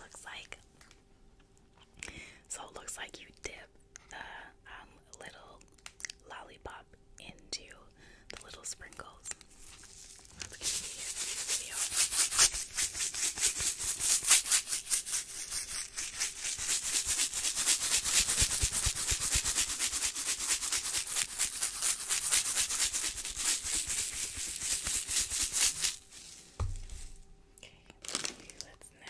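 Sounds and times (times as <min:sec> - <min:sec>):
plastic container scratching: 0:09.8 - 0:26.1.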